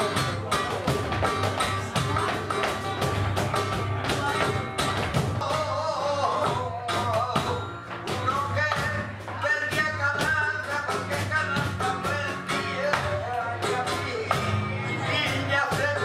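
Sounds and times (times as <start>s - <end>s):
guitar playing: 0.0s - 16.0s
person singing: 5.3s - 16.0s.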